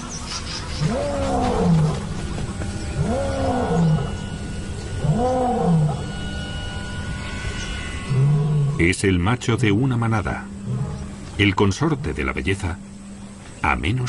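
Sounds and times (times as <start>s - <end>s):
lion roaring: 0.8s - 2.2s, 2.8s - 4.2s, 5.0s - 6.1s, 10.6s - 11.2s.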